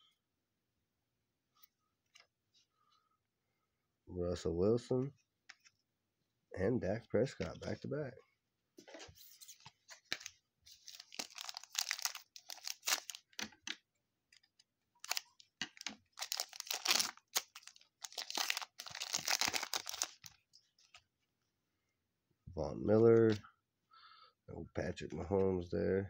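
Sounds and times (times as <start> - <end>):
foil wrapper crinkling: 10.1 - 13.4, 15.0 - 21.0
foil wrapper tearing open: 10.8 - 13.4, 15.0 - 20.3.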